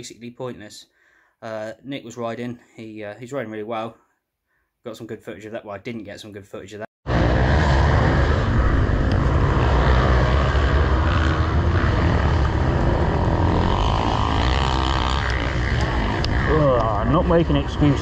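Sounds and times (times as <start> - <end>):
dirt bike engine rumbling: 7.1 - 18.0.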